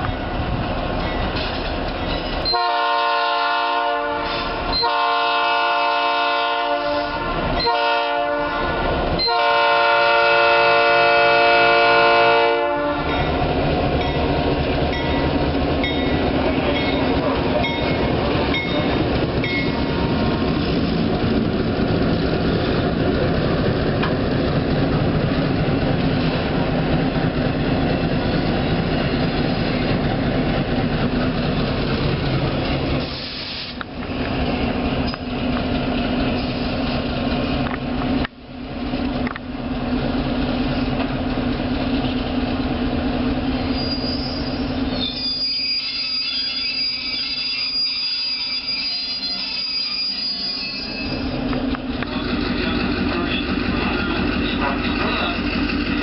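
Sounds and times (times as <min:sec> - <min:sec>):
train rumbling past: 0:00.0 - 0:56.0
locomotive air horn blasts: 0:02.4 - 0:13.2
wheels clicking over rail joints: 0:13.1 - 0:27.3.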